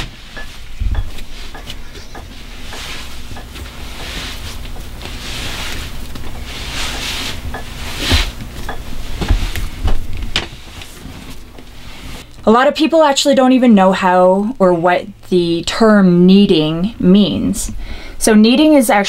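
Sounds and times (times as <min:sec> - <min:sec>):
hands kneading dough: 0:00.0 - 0:12.3
low steady hum: 0:00.0 - 0:19.0
dough thumping on table: 0:07.5 - 0:10.6.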